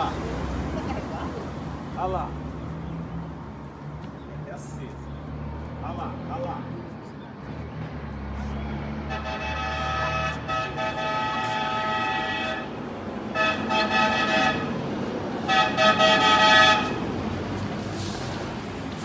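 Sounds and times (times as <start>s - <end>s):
truck engine rumble: 0.0s - 19.0s
truck air horn blasts: 9.0s - 14.8s, 15.4s - 17.0s.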